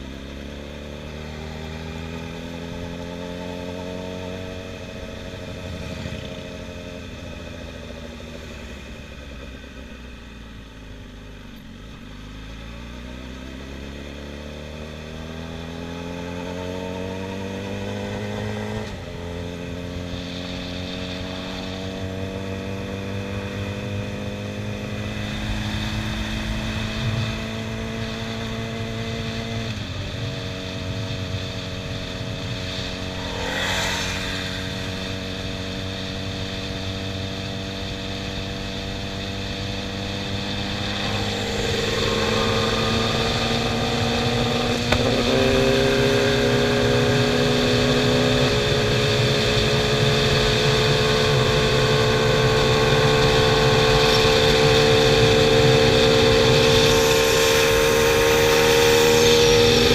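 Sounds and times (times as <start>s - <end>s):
second motorcycle engine: 0.0s - 59.9s
sport bike engine revving: 13.7s - 59.9s
wind noise: 29.2s - 38.3s.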